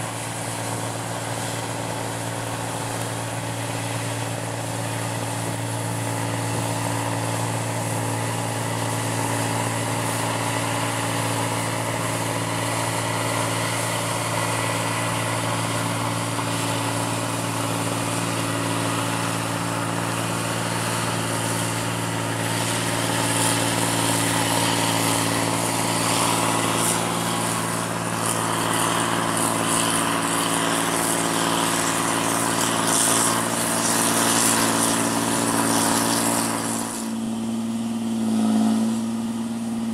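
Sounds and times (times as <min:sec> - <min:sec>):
combine harvester running: 0:00.0 - 0:39.9.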